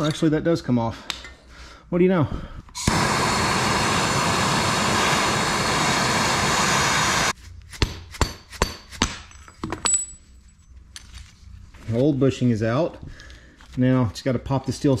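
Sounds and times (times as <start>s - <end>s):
gas torch hissing: 2.7s - 7.4s.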